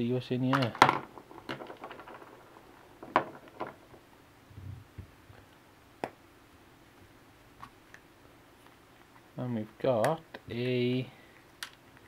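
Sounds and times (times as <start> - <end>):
pieces knocking on tabletop: 0.6 - 4.0.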